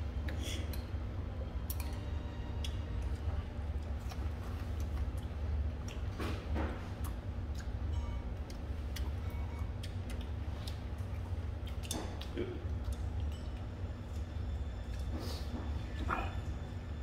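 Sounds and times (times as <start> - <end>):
low hum: 0.0 - 6.0.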